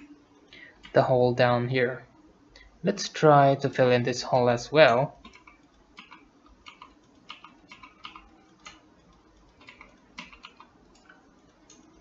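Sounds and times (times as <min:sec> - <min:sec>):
keyboard and mouse clicks: 0:05.2 - 0:12.0.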